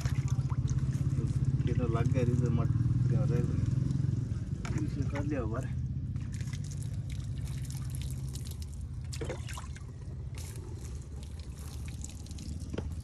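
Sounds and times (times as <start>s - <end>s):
trickling: 0.0s - 2.7s, 3.5s - 13.0s
engine running at low revs: 0.0s - 7.5s.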